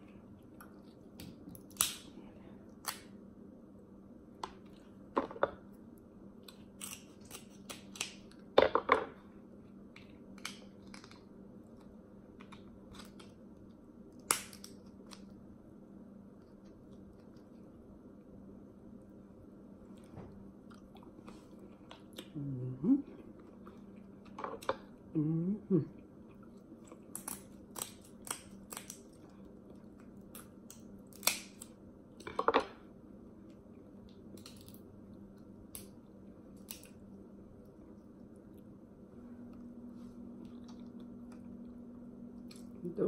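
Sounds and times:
crab shells cracking and snipped: 1.2 - 2.1, 2.8 - 3.2, 6.4 - 8.4, 9.9 - 11.2, 14.1 - 15.3, 27.0 - 29.2, 30.0 - 32.4, 34.4 - 34.8, 35.7 - 37.0
quiet chewing: 19.8 - 22.4, 23.0 - 25.1, 25.9 - 30.9, 33.4 - 42.8
person humming: 22.3 - 23.0, 25.1 - 26.0.

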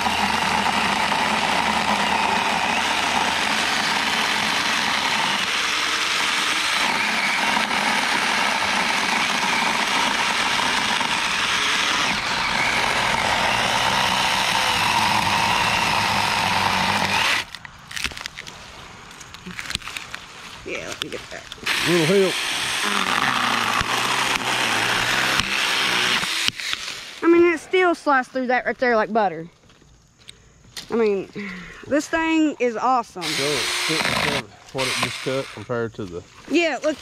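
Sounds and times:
electric chainsaw cutting wood: 0.0 - 17.6, 21.6 - 27.3, 33.2 - 35.7.

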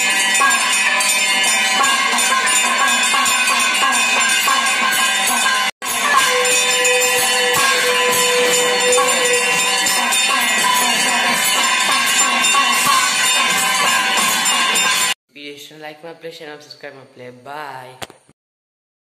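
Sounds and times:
bells ringing rapidly: 0.0 - 15.2
long held note: 5.8 - 13.3.

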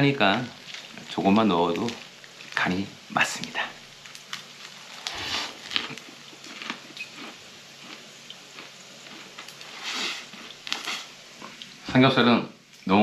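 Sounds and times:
man chewing food: 0.5 - 1.2, 1.8 - 2.6, 4.0 - 11.8.

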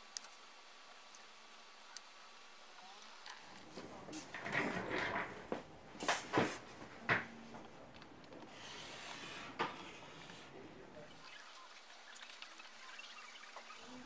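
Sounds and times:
marker drawing on paper: 8.5 - 10.5.

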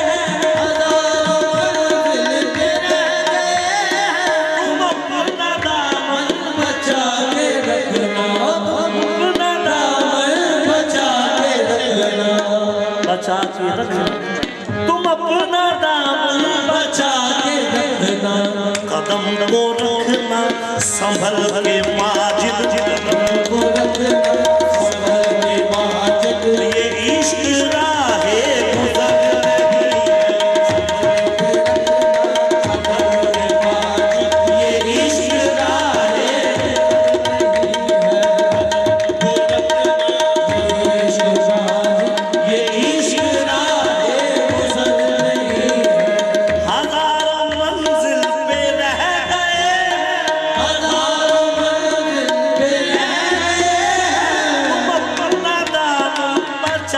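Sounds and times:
hand drums: 0.0 - 15.1, 18.0 - 56.9
harmonium holding a note: 7.6 - 42.7.

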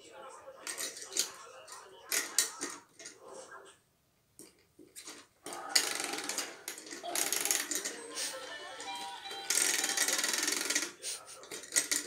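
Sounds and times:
plastic toy clicking and rattling: 0.6 - 3.2, 5.0 - 12.0
continuous toy rattling: 4.9 - 12.0.

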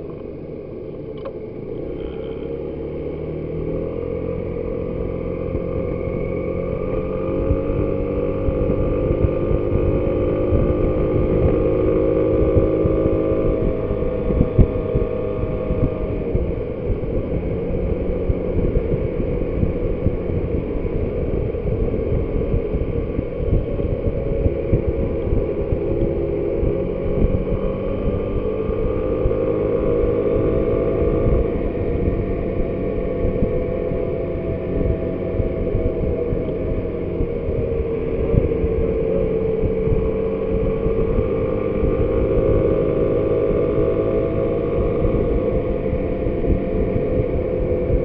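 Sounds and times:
motor scooter engine running: 0.0 - 48.0
wind buffeting microphone: 3.4 - 48.0.

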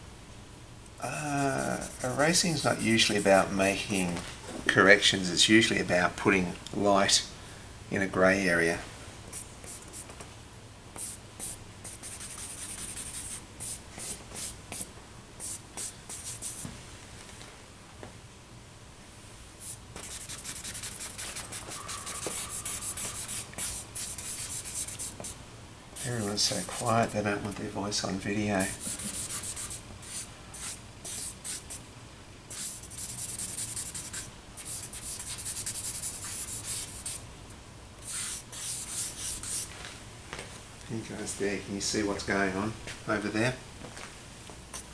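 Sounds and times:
charcoal scratching on paper: 11.0 - 16.6, 19.6 - 25.4, 26.0 - 27.0, 28.6 - 31.8, 32.5 - 37.2, 38.0 - 39.7.

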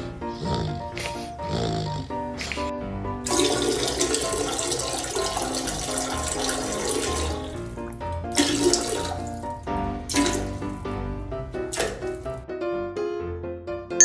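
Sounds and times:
background music: 0.0 - 14.0
liquid splashing into toilet water: 3.2 - 11.0, 11.6 - 12.4.

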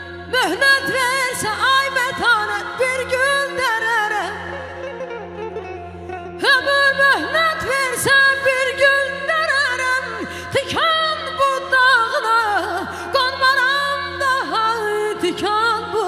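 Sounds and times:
woman singing into a microphone: 0.0 - 16.0.

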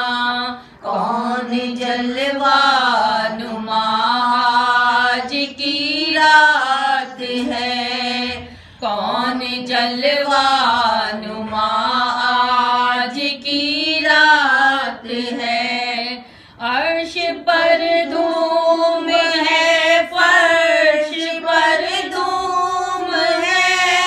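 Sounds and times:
woman singing unaccompanied: 0.0 - 24.0
singer breath: 0.5 - 0.9, 8.4 - 8.9, 16.2 - 16.6.

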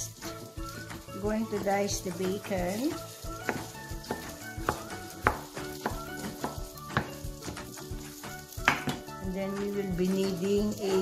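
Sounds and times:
soft background music: 0.0 - 11.0
knife chopping on wooden board: 3.4 - 7.2, 8.6 - 9.1.

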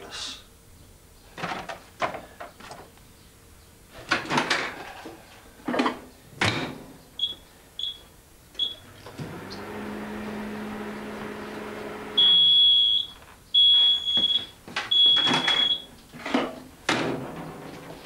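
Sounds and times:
microwave humming: 8.5 - 13.2
short keypad beeps: 12.2 - 15.9.

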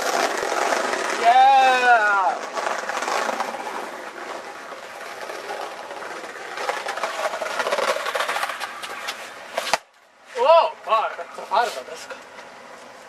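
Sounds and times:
skateboard wheels rattling on paving: 0.0 - 9.9.

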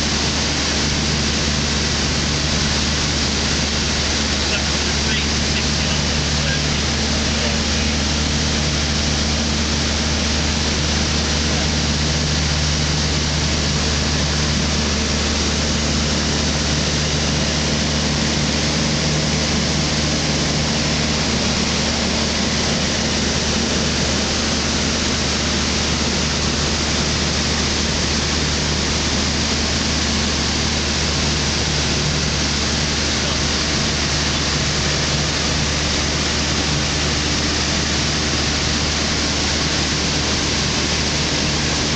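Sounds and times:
microlight engine and propeller drone: 0.0 - 41.9.

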